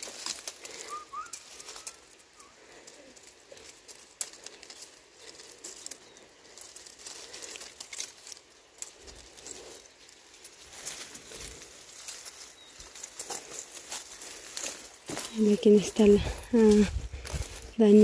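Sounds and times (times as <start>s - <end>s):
leaves and twigs rustling: 0.0s - 18.0s
bird chirps: 0.7s - 2.6s.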